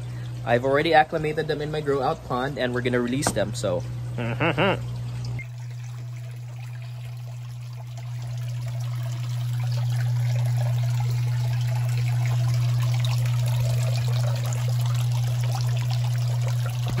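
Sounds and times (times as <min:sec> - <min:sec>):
steady low hum: 0:00.0 - 0:17.0
water pouring into pond: 0:05.4 - 0:17.0.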